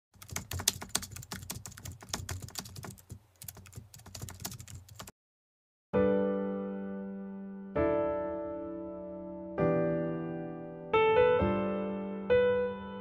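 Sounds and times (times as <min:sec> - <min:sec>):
rapid keyboard typing clicks: 0:00.2 - 0:05.1
piano chord ringing: 0:06.0 - 0:13.0.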